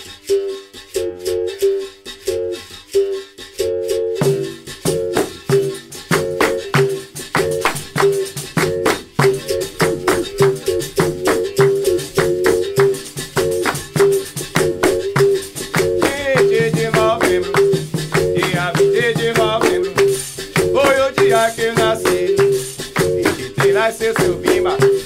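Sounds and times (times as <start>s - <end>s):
rhythmic hand clapping: 0.0s - 25.0s
berimbau alternating two notes: 0.2s - 25.0s
person singing: 9.2s - 13.0s, 14.9s - 25.0s.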